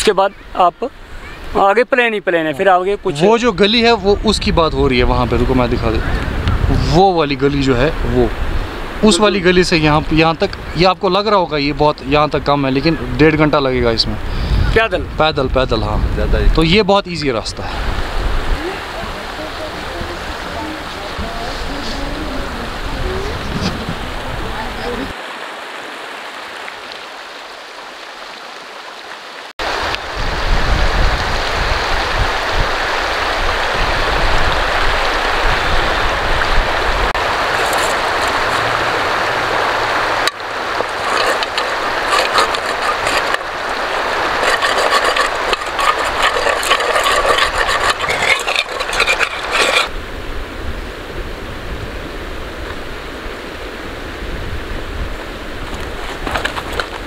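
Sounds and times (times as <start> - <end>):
stream rushing over stones: 0.0 - 16.0, 16.6 - 57.0
wind rumble on microphone: 3.9 - 7.2, 14.1 - 16.9, 17.6 - 25.1, 29.6 - 40.2, 40.8 - 57.0
metal pot being scrubbed: 37.5 - 38.7, 40.8 - 50.0.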